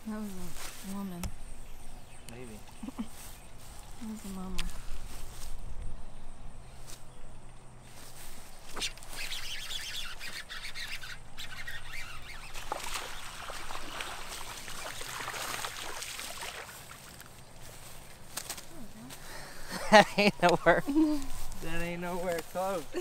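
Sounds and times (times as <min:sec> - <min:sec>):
fish splashing in water: 0:12.2 - 0:17.3.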